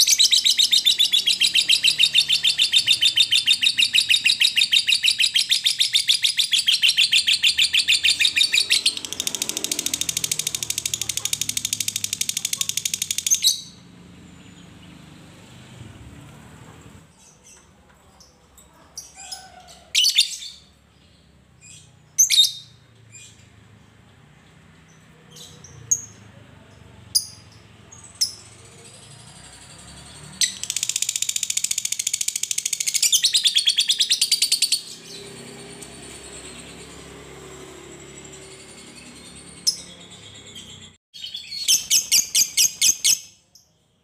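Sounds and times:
fast chattering bird trill: 0:00.0 - 0:13.8, 0:27.2 - 0:37.1
sharp bird chirps: 0:00.0 - 0:15.2, 0:27.2 - 0:43.8.

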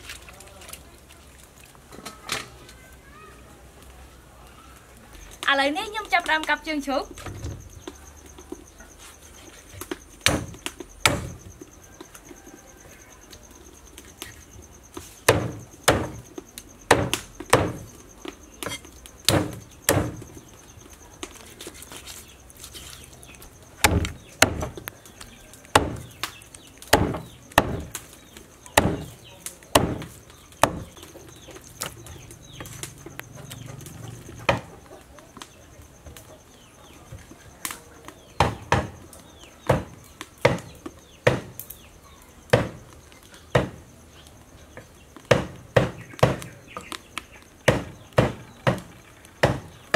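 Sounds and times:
cleaver chopping on wooden board: 0:15.3 - 0:16.2, 0:16.9 - 0:17.8, 0:18.6 - 0:20.2, 0:23.8 - 0:24.8, 0:25.7 - 0:26.1, 0:26.9 - 0:27.9, 0:28.8 - 0:29.1, 0:29.8 - 0:31.0, 0:39.7 - 0:40.7, 0:45.3 - 0:46.5, 0:47.7 - 0:48.8, 0:49.4 - 0:49.7.

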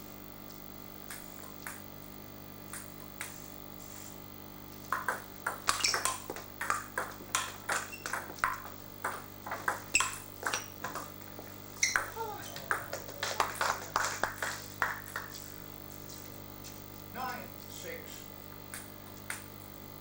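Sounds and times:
table tennis ball clicking: 0:04.9 - 0:11.1, 0:11.8 - 0:13.7.

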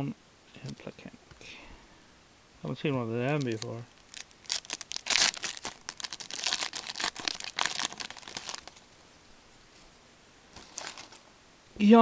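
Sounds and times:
wrapper crinkling and tearing: 0:03.3 - 0:08.8, 0:10.6 - 0:11.2.

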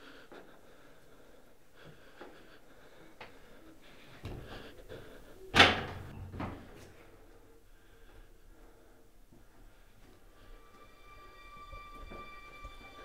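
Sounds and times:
door slamming shut: 0:05.5 - 0:06.6.

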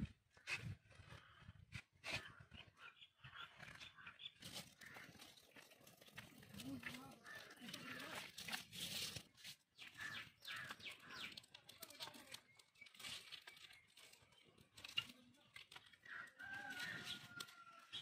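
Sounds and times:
drawn-out bird call: 0:01.1 - 0:08.4, 0:09.7 - 0:14.2
sticks ticking in small fire: 0:10.0 - 0:17.9.

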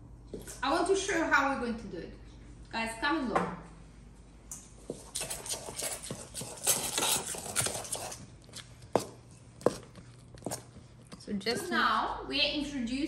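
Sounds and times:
fork scraping in metal bowl: 0:05.0 - 0:08.2.

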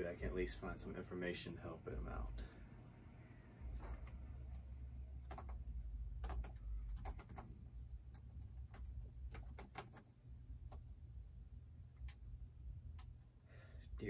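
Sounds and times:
low steady hum: 0:00.0 - 0:14.0
laptop keyboard typing: 0:03.8 - 0:10.9.

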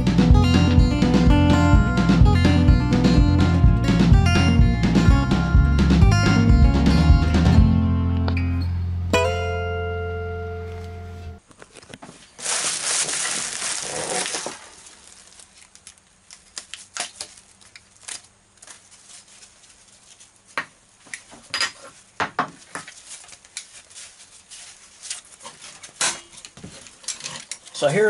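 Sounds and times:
bubble wrap crinkling: 0:11.4 - 0:21.3, 0:21.9 - 0:27.1
rustles and light metal clicks: 0:14.8 - 0:28.0.

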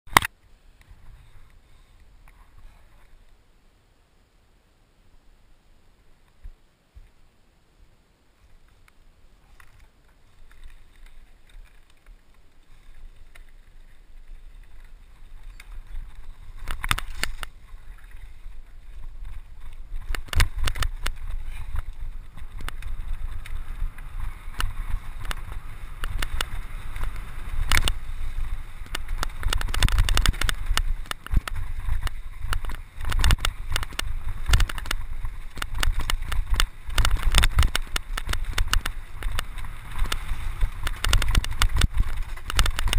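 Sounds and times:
wind and tyres rumbling: 0:00.1 - 0:42.9
bike clattering over bumps: 0:12.7 - 0:42.9
wind buffeting microphone: 0:13.2 - 0:42.9.

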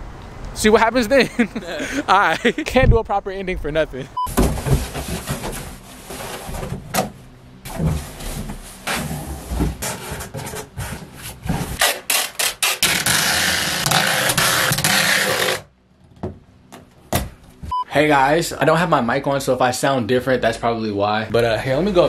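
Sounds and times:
cardboard knocks and rustles: 0:04.3 - 0:05.6
loud cardboard scraping: 0:04.4 - 0:07.0, 0:07.6 - 0:15.7.

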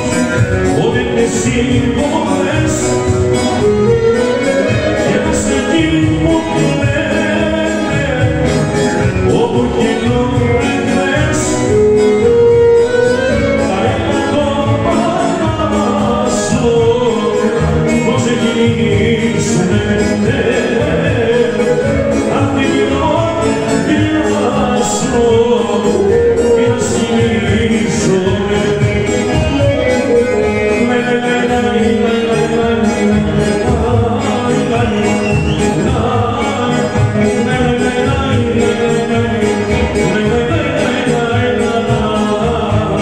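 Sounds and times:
folk dance band over loudspeakers: 0:00.0 - 0:43.0
clarinet melody: 0:02.6 - 0:07.8, 0:10.4 - 0:15.3, 0:21.0 - 0:32.3.

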